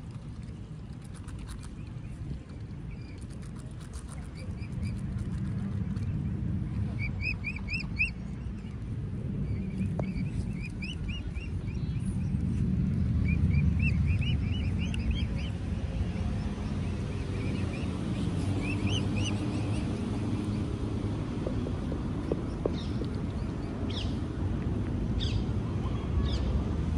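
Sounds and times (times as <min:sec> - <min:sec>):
steady low rumble: 0:00.0 - 0:26.9
cygnets peeping: 0:00.8 - 0:06.3, 0:06.9 - 0:08.8, 0:09.5 - 0:12.6, 0:13.2 - 0:24.3.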